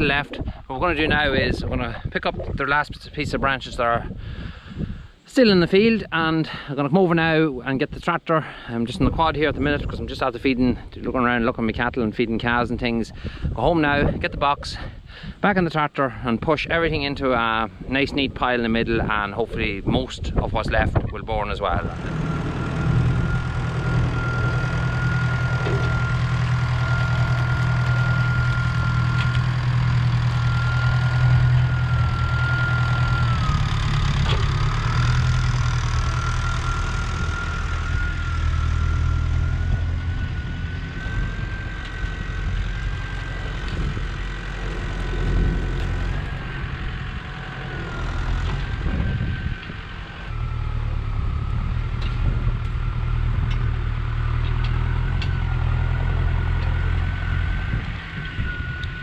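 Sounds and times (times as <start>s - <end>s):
tractor diesel engine working: 0.0s - 59.0s
steady high whine: 17.0s - 59.0s.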